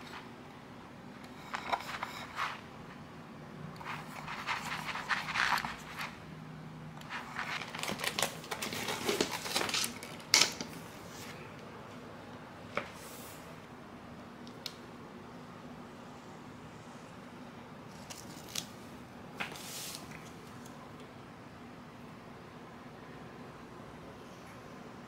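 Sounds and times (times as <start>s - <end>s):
vinyl sheet crinkling: 7.0s - 10.3s.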